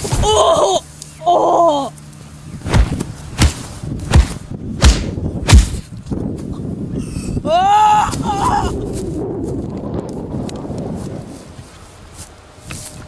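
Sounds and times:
person crying out: 0.0 - 2.0, 7.2 - 8.9
punches thudding: 2.6 - 5.9.

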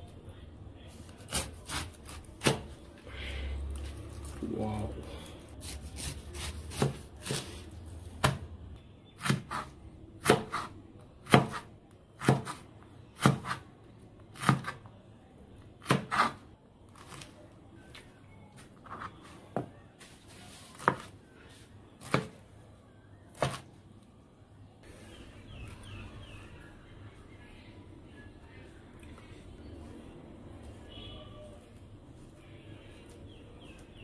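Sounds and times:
knife chopping on plastic board: 5.6 - 7.6, 8.2 - 8.4, 9.2 - 12.6, 13.2 - 13.6, 14.4 - 14.9, 15.8 - 16.4, 22.0 - 22.4, 23.3 - 23.6.

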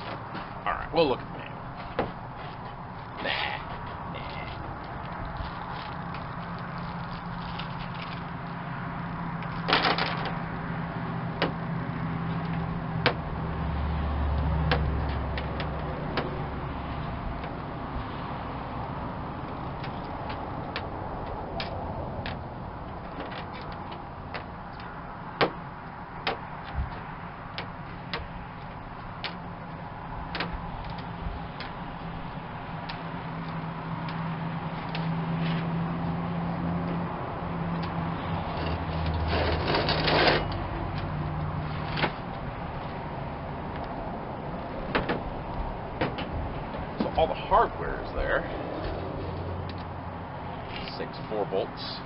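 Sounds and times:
wind rumble on microphone: 26.6 - 27.3.

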